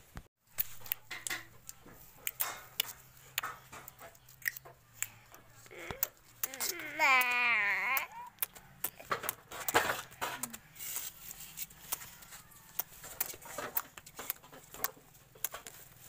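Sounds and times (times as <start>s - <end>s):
small children vocalizing: 5.6s - 9.1s.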